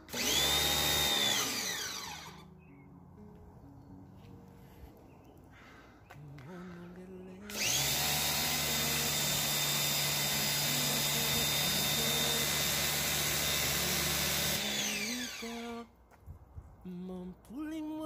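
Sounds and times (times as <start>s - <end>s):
pressure washer motor humming: 0.0s - 2.4s, 7.4s - 15.8s.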